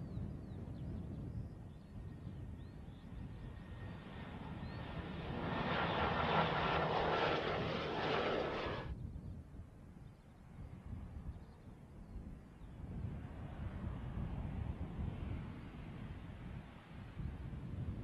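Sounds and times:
turboprop plane passing low: 0:01.0 - 0:09.0, 0:13.1 - 0:18.0.

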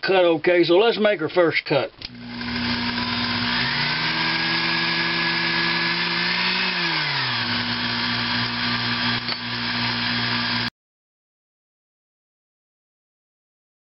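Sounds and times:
lathe motor humming: 0:02.1 - 0:10.7.

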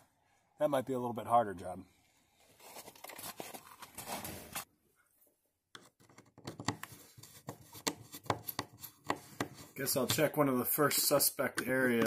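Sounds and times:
clothing rustling: 0:02.4 - 0:04.7
screwdriver clicking and scraping: 0:05.8 - 0:10.3.

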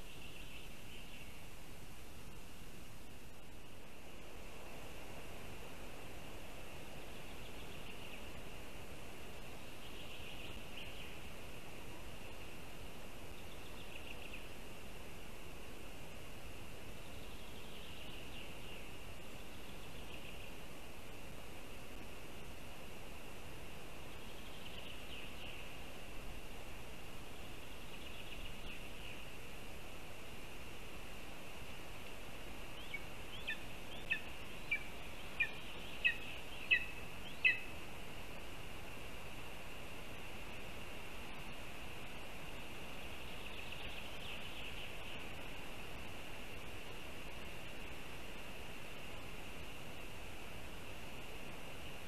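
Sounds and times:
forest ambience hiss: 0:00.0 - 0:52.0
eagle calling: 0:32.8 - 0:37.7.

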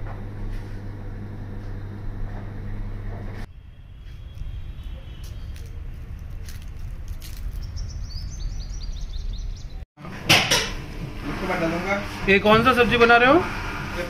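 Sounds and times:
steady low rumble: 0:03.4 - 0:09.8
small bird chirping: 0:03.8 - 0:09.8.

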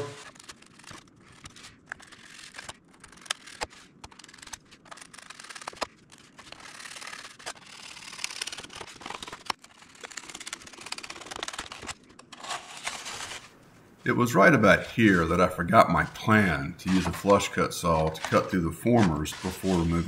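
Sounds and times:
blade clicks and crackles: 0:00.0 - 0:13.4, 0:16.2 - 0:20.0
knife blade scraping through wood: 0:11.7 - 0:13.5, 0:16.1 - 0:20.0.

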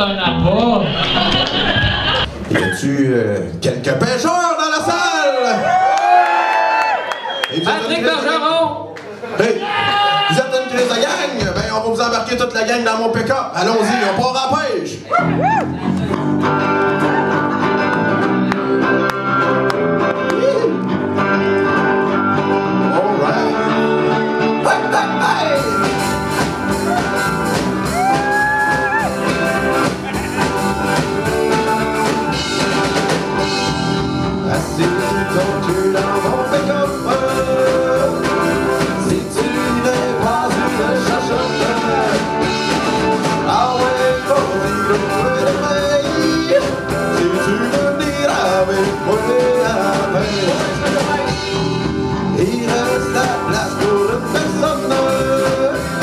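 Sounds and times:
live band playing rock song: 0:13.2 - 0:56.0
person singing lead vocals: 0:22.6 - 0:25.9, 0:34.3 - 0:51.6, 0:52.3 - 0:56.0.

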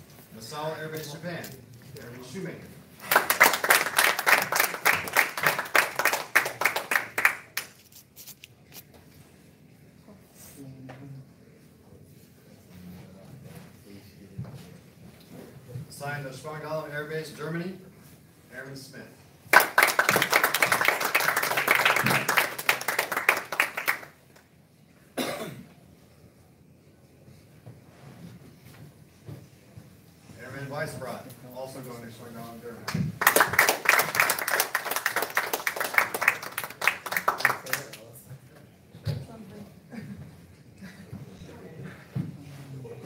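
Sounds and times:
small audience applauding: 0:02.9 - 0:07.9, 0:19.5 - 0:24.5, 0:32.9 - 0:38.3
person coughing: 0:25.2 - 0:25.7.

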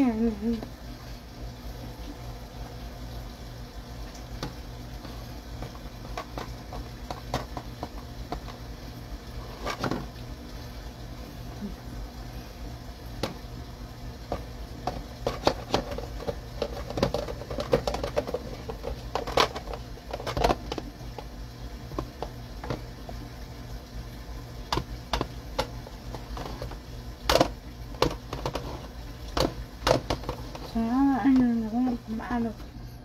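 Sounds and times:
basket shaken against plastic container: 0:14.3 - 0:20.9, 0:25.2 - 0:31.4.

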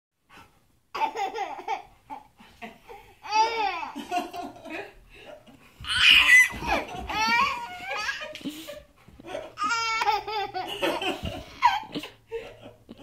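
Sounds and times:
baby laughing: 0:00.9 - 0:04.4, 0:05.8 - 0:13.0.

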